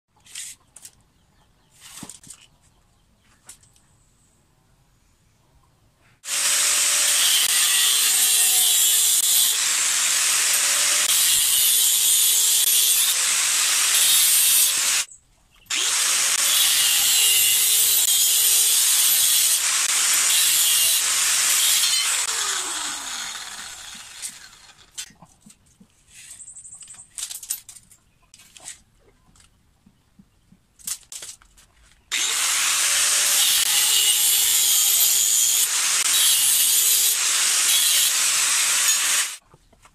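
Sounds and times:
angle grinder cutting steel pipe: 0:06.2 - 0:15.1, 0:15.7 - 0:25.1, 0:32.1 - 0:39.4.

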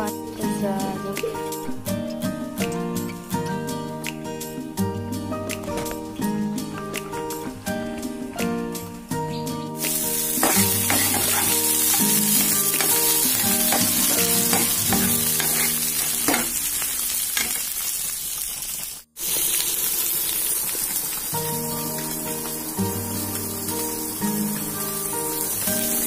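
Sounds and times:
faint background music: 0:00.0 - 0:16.8
onions sizzling in hot oil: 0:09.8 - 0:26.0
spatula stirring and scraping: 0:10.4 - 0:16.5.

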